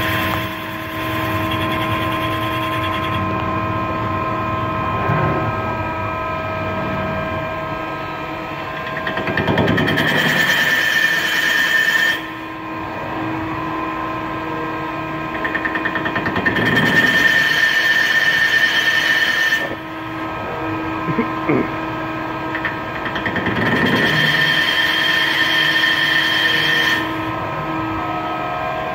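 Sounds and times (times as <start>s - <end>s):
tool cutting metal with squeal: 0.0s - 3.4s, 8.8s - 12.5s, 15.3s - 20.2s, 22.6s - 27.3s
lathe spindle whine: 0.0s - 28.9s.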